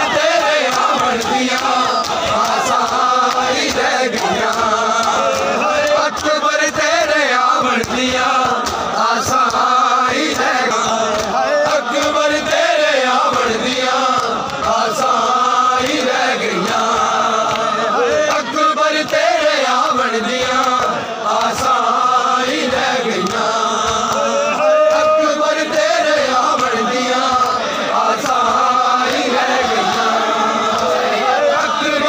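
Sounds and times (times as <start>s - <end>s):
men chanting a lament: 0.0s - 32.0s
chest-beating slaps: 0.4s - 12.6s, 22.5s - 31.1s.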